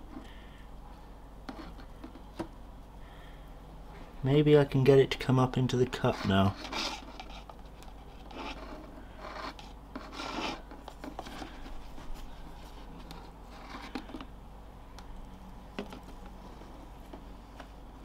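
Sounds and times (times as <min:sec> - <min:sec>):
plastic cup and straw scraping: 0:05.9 - 0:14.3.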